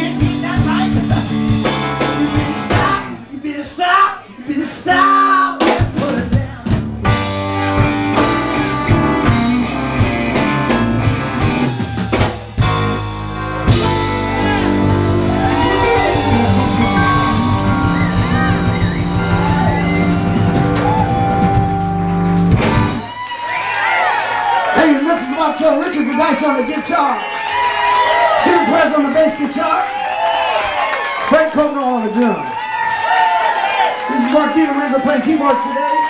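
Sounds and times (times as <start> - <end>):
live rock band playing: 0.0 - 3.4, 5.5 - 29.6
lead guitar notes bending: 7.0 - 11.8, 12.6 - 23.0.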